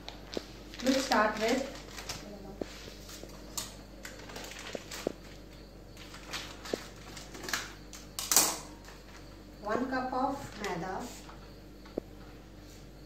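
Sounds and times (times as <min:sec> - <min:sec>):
plastic packet rustling: 0:00.0 - 0:05.4, 0:06.0 - 0:07.8.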